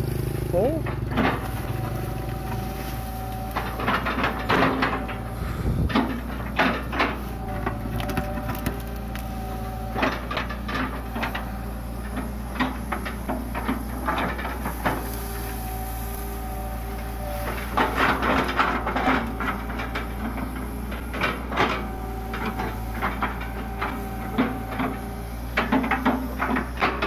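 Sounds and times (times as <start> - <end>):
excavator diesel engine running: 0.0 - 27.0
hydraulic whine: 0.9 - 27.0
bucket crunching through stumps: 1.1 - 11.5.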